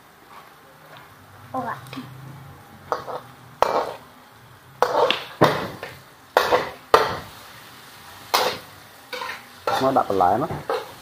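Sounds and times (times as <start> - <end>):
metal ladle scraping a wok: 2.9 - 4.1, 4.8 - 6.8, 8.3 - 10.0, 10.6 - 11.0.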